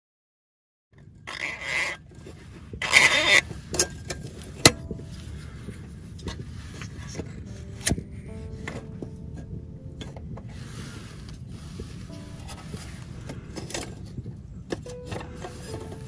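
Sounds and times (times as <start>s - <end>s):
steady low rumble: 2.2s - 16.0s.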